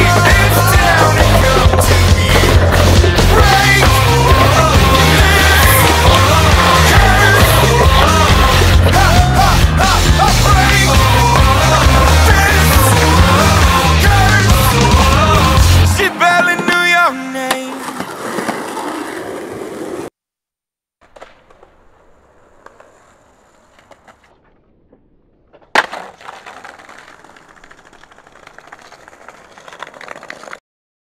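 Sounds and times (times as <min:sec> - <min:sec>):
rock music: 0:00.0 - 0:17.3
skateboard wheels rolling over pavers: 0:00.0 - 0:20.1, 0:21.0 - 0:30.6
skateboard clacking on pavement: 0:25.7 - 0:30.6.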